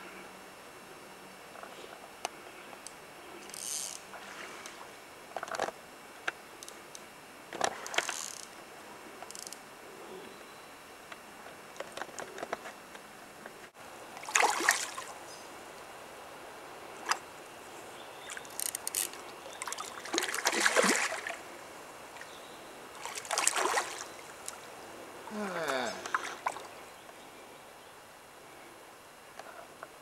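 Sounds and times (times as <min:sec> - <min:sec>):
fish splashing at surface: 0:14.2 - 0:15.0.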